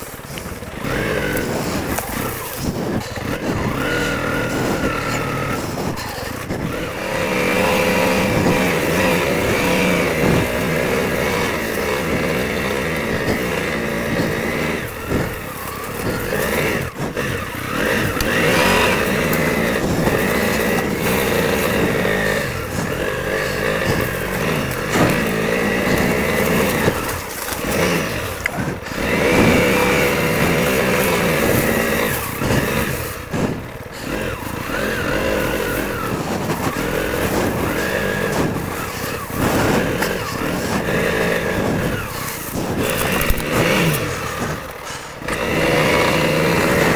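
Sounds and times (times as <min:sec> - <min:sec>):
motorcycle engine revving: 0:00.0 - 0:46.9.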